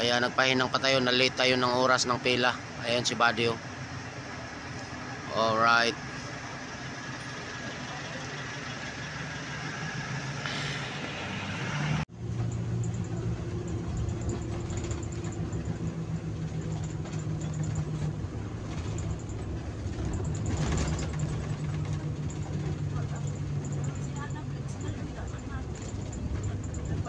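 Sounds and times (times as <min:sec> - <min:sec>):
bus engine running: 0:00.0 - 0:27.0.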